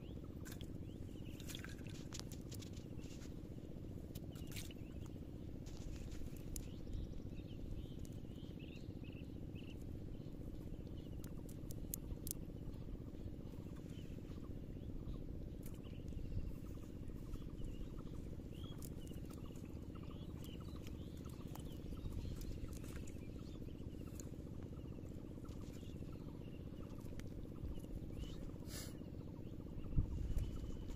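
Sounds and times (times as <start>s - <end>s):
steady low rumble: 0.0s - 30.9s.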